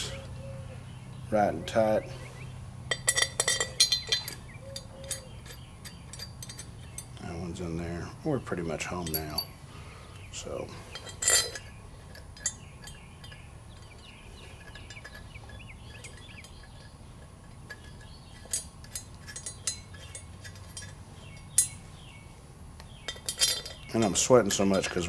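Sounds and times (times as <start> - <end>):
low steady hum: 0.0 - 25.0
metal bolts clinking: 2.9 - 7.4, 8.8 - 9.5, 10.4 - 22.0, 22.8 - 25.0.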